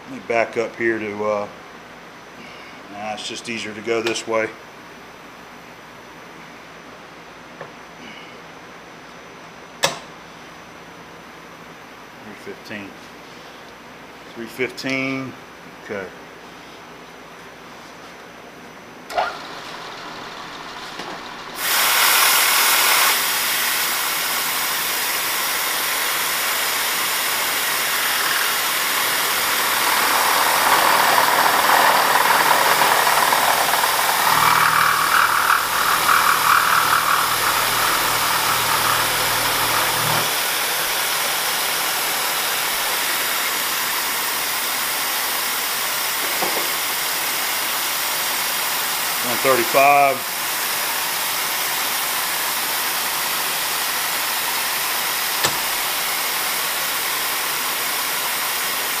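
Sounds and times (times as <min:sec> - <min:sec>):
low machine hum: 0:18.8 - 0:21.6, 0:27.0 - 0:41.4
hiss of air from nozzle: 0:21.6 - 0:30.2
milling cutter cutting metal: 0:27.0 - 0:41.2, 0:55.2 - 0:56.1.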